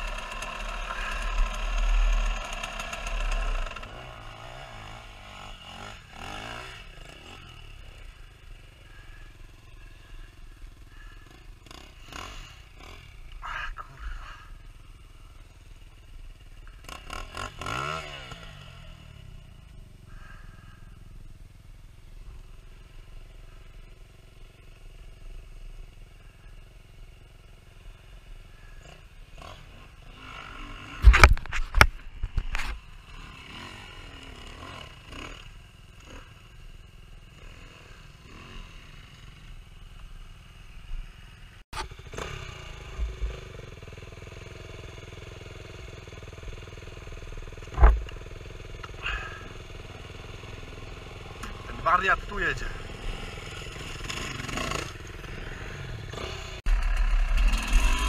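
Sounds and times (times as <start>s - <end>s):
dirt bike engines revving: 0.0s - 58.0s
loud thumps: 47.7s - 48.1s.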